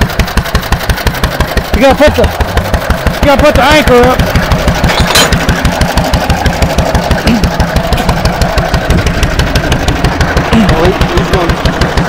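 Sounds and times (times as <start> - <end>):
gasoline engine running: 0.0 - 12.0.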